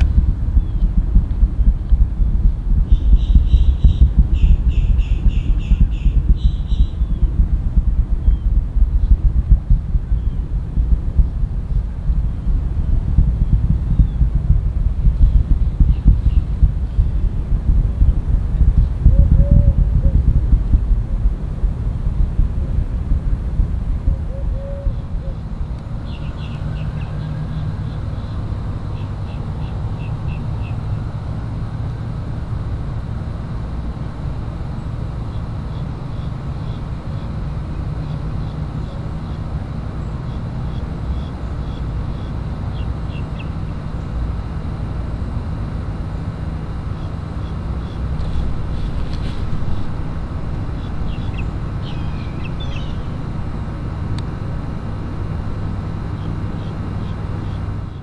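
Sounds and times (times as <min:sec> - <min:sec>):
faint hum: 0:00.0 - 0:58.0
low outdoor rumble: 0:00.0 - 0:58.0
bird chirps: 0:00.6 - 0:00.9, 0:01.6 - 0:07.4, 0:08.2 - 0:09.2, 0:50.8 - 0:53.1.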